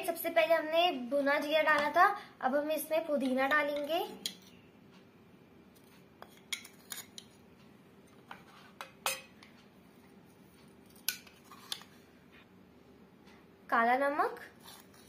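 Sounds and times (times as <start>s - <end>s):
spoon clinking against pot: 8.8s - 9.4s.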